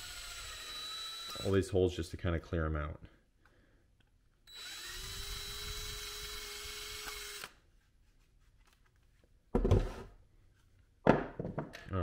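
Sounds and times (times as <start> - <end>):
cordless drill whining: 0.0 - 1.6, 4.4 - 7.6.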